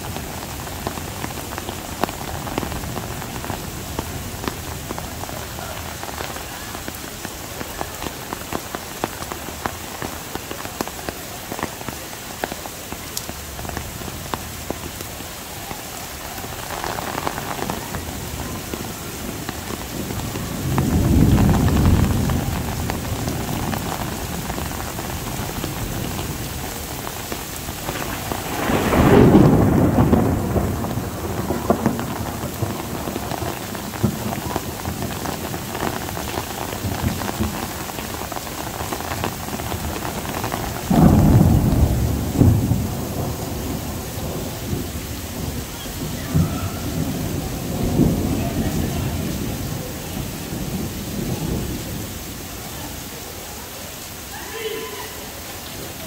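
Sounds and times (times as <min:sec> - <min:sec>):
heavy rain falling: 0:00.0 - 0:56.0
thunder rumbling: 0:12.9 - 0:52.9.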